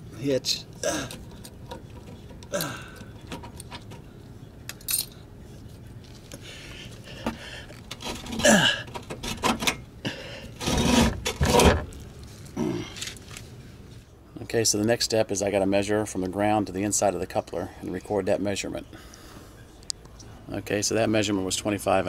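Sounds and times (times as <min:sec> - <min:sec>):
metal clanking and scraping: 0:07.8 - 0:09.8, 0:10.6 - 0:11.9.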